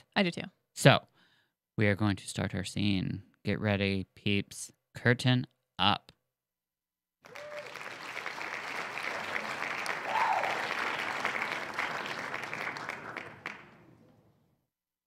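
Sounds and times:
audience applause: 0:07.3 - 0:14.1.

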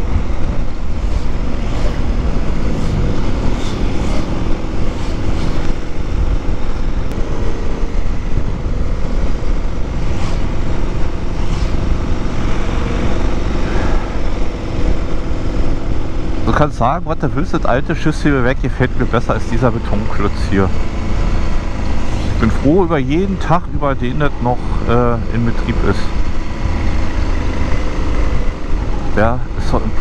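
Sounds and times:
motorcycle engine running: 0:00.0 - 0:30.0
wind rushing on microphone: 0:00.0 - 0:30.0.

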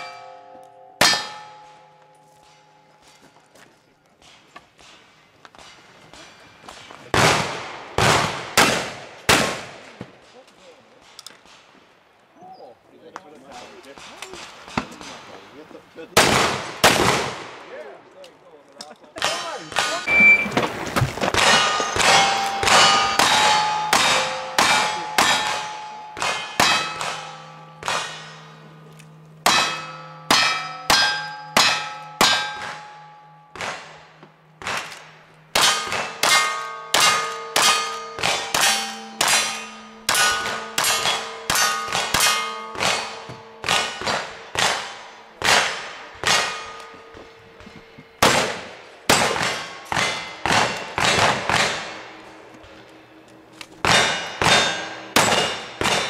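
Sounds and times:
steel targets clanging: 0:00.0 - 0:03.6, 0:19.2 - 0:52.3, 0:53.8 - 0:56.0
rapid gunshots: 0:41.9 - 0:46.5.

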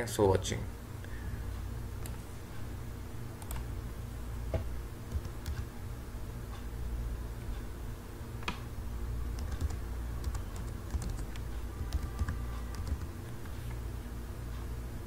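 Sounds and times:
low hum: 0:00.6 - 0:15.0
computer keyboard typing: 0:03.4 - 0:03.6, 0:05.1 - 0:05.7, 0:09.3 - 0:13.5.

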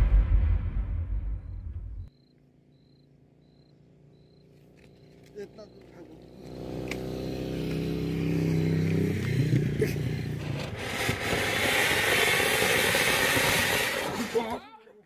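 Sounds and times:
fountain firework hissing: 0:10.8 - 0:14.4.

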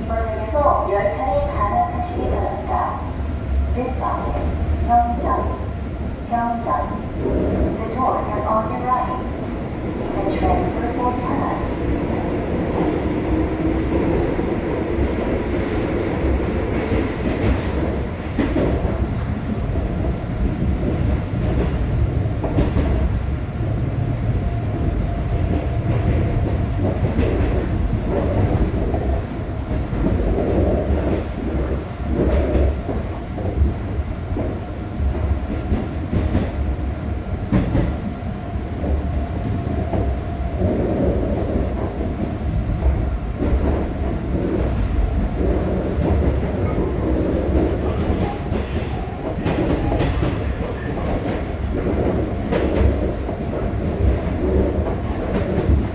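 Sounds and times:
train wheels rumbling on track: 0:00.0 - 0:55.9
clacks over rail joints: 0:42.8 - 0:55.9.

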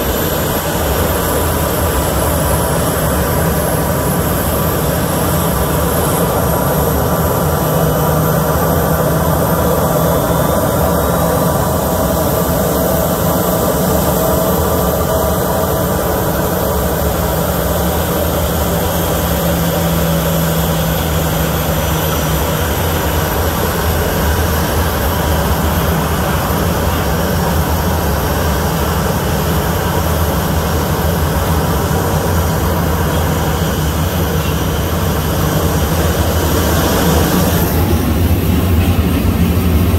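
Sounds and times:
jet engines whining at taxi power: 0:00.0 - 0:39.9.

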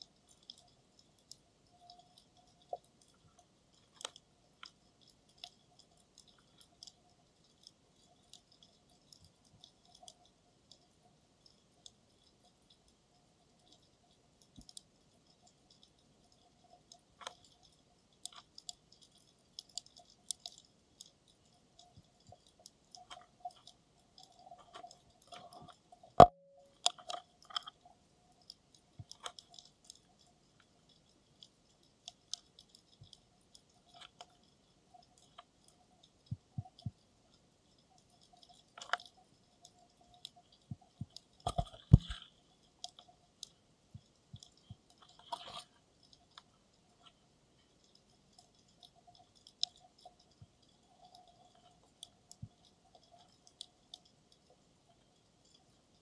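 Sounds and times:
underwater clicks and pops: 0:03.9 - 0:04.8, 0:22.2 - 0:27.8, 0:40.2 - 0:45.7.

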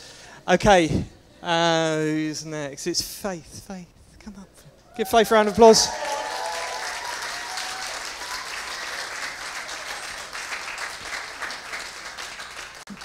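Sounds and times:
congregation applauding: 0:05.3 - 0:13.0.

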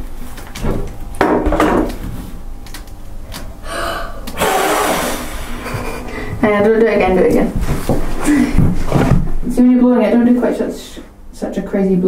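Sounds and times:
objects knocking on wooden table: 0:01.2 - 0:02.0
breath blowing out candle: 0:03.6 - 0:05.6.

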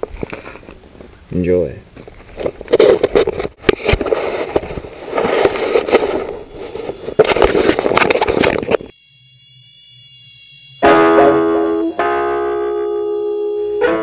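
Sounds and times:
head camera rumbling and rustling: 0:00.0 - 0:08.9
faint steady tones: 0:05.8 - 0:14.0.

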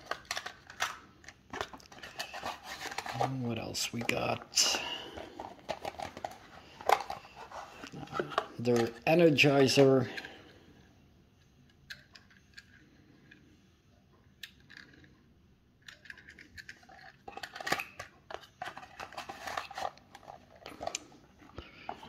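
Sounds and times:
packaging crinkling: 0:00.0 - 0:09.0, 0:16.1 - 0:22.0.

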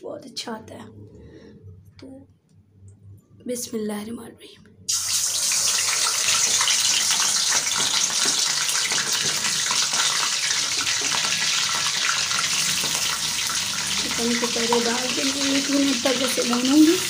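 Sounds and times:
chicken sizzling in hot oil: 0:04.9 - 0:17.0.

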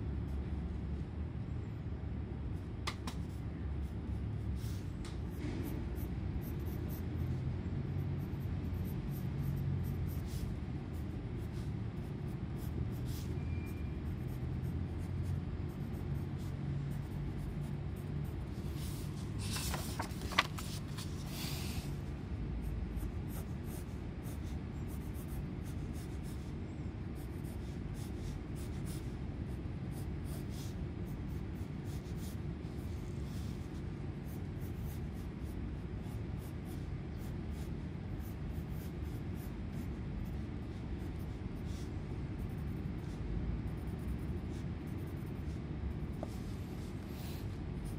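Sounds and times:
steady low hum: 0:00.0 - 0:47.9
pencil scratching on paper: 0:03.8 - 0:21.9, 0:22.6 - 0:26.5, 0:27.2 - 0:47.9
paper handling: 0:18.8 - 0:21.9.

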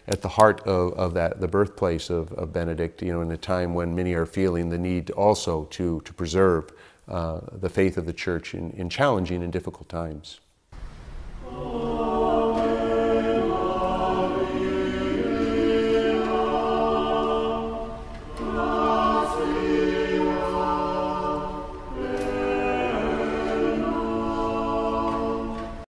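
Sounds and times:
short breaths: 0:06.7 - 0:07.1
choir singing unaccompanied: 0:11.2 - 0:25.9.

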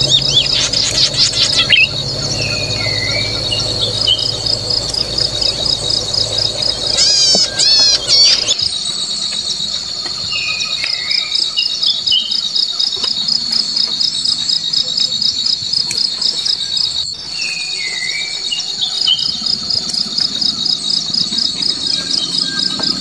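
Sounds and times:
short falling chirps: 0:00.0 - 0:08.7
insect trill: 0:00.0 - 0:23.0.

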